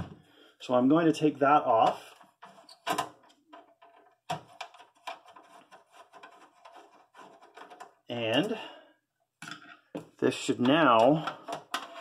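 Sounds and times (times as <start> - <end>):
screwdriver clicks and scrapes: 11.0 - 12.0.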